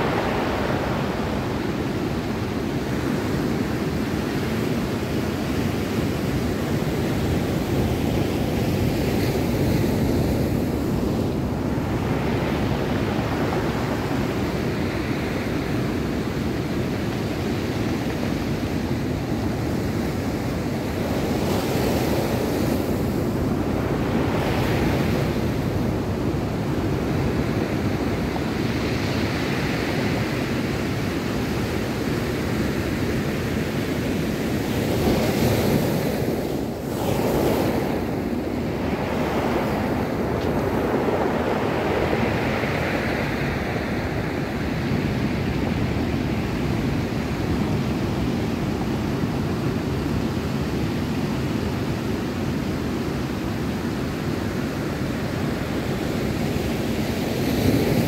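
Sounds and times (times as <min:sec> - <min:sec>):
surf breaking on stony beach: 0:34.2 - 0:47.7.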